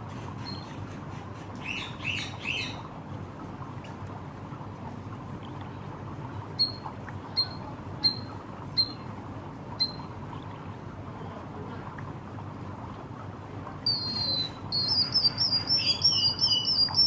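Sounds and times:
low background noise: 0.0s - 17.0s
bird chirping: 7.4s - 9.0s, 9.8s - 10.1s, 13.9s - 17.0s.

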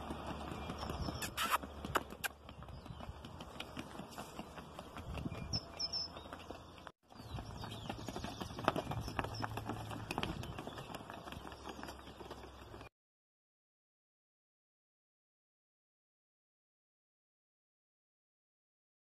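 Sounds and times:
horse hooves clip-clop on asphalt: 0.0s - 12.9s.

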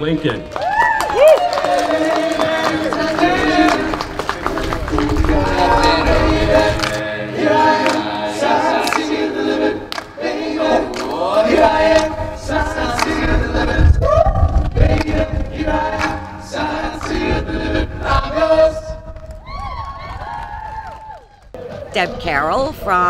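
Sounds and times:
choir singing: 1.5s - 19.1s.

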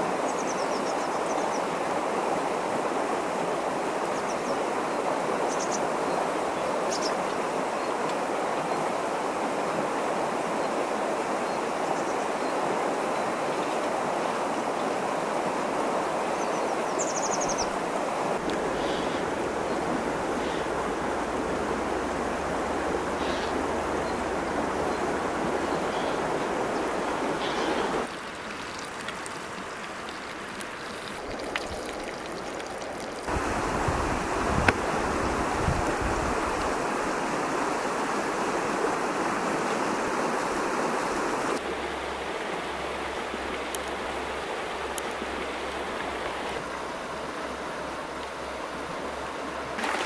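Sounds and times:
steady rushing noise: 17.7s - 28.1s.

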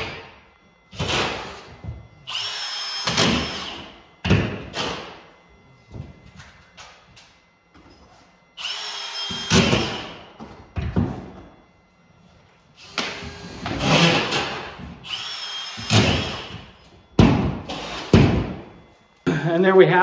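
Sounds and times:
cordless drill driving screws: 8.6s - 10.0s, 15.1s - 16.6s.

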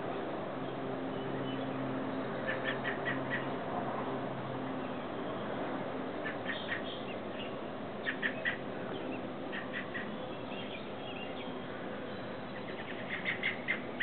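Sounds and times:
robin alarm calls: 2.4s - 3.6s, 6.2s - 14.0s.

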